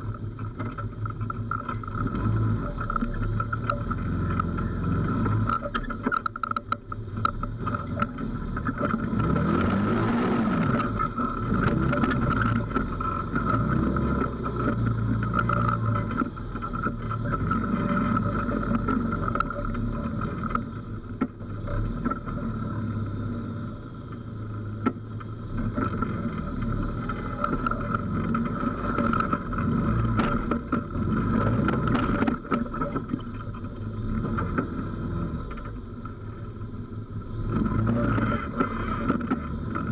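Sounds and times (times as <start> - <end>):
off-road vehicle engine revving: 0.0 - 39.9.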